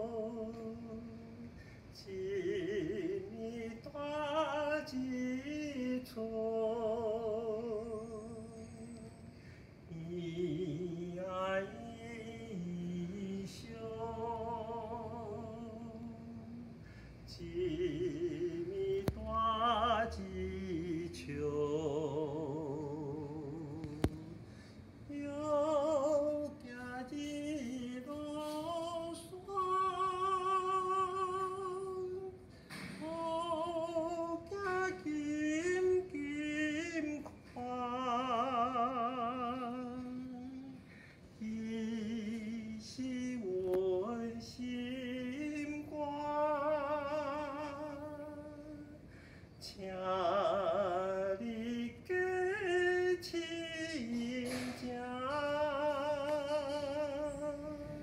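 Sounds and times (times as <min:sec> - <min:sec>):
person singing unaccompanied: 0:00.0 - 0:09.2, 0:25.1 - 0:40.8, 0:41.4 - 0:58.0.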